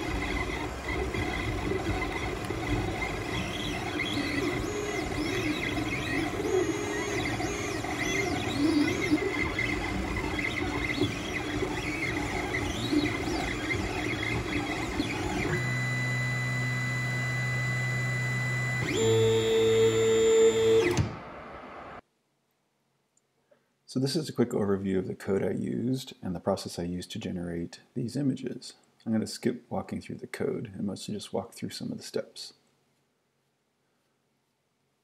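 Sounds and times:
stepper motors whining: 0.0s - 21.8s.

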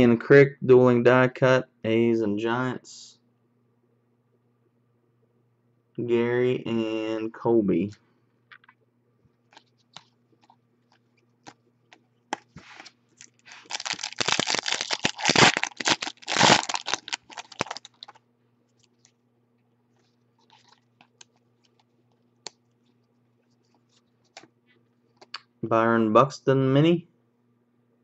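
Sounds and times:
wrapper crinkling and tearing: 12.3s - 18.2s, 20.0s - 22.2s.

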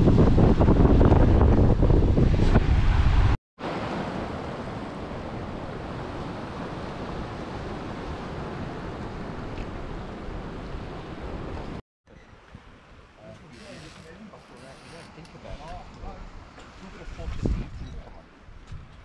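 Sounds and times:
wind buffeting microphone: 0.0s - 3.4s, 15.8s - 19.0s
sea waves: 2.7s - 11.8s.

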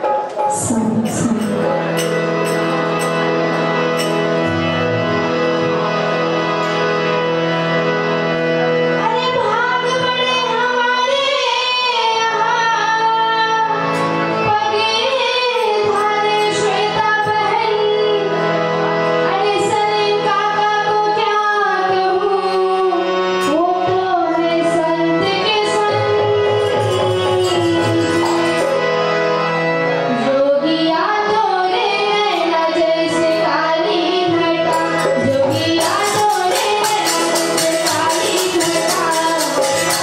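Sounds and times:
harmonium chords: 0.0s - 40.0s
woman singing: 0.5s - 2.0s, 9.0s - 13.7s, 14.4s - 18.4s, 19.3s - 28.8s, 30.1s - 40.0s.

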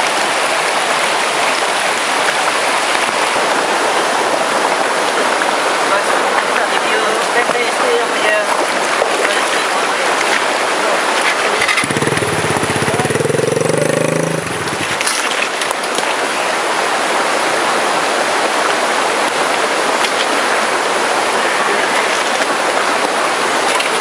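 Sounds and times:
stream water rushing: 0.0s - 24.0s
dirt bike engine running hard: 10.7s - 15.4s.

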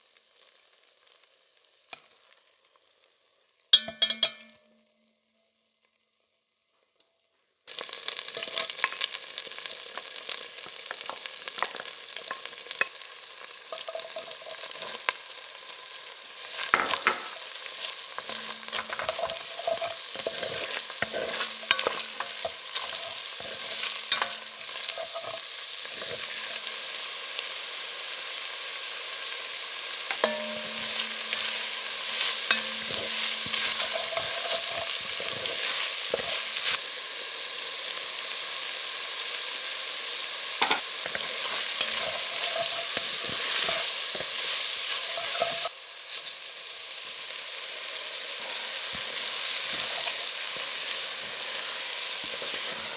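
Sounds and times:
vegetables sizzling in oil: 0.0s - 52.9s
wooden spatula scraping pot: 16.6s - 26.6s, 30.1s - 36.8s, 40.6s - 45.7s.

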